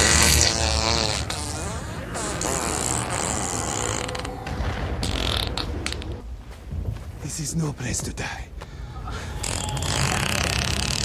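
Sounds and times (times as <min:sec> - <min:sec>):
wavering creak-like pitched sound: 0:00.0 - 0:06.2, 0:09.2 - 0:11.0
film score: 0:00.0 - 0:11.0.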